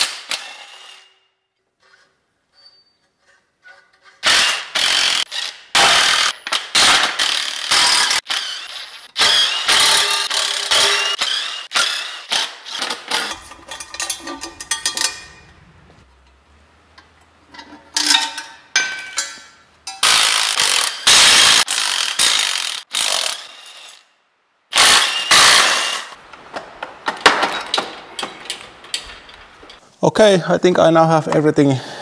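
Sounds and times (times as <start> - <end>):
impact driver undoing bolts: 4.2 - 15.5.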